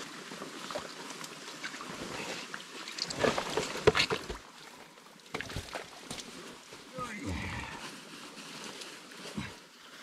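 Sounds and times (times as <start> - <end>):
splashes and knocks: 0.0 - 6.9
mud sloshing and squelching: 0.0 - 10.0.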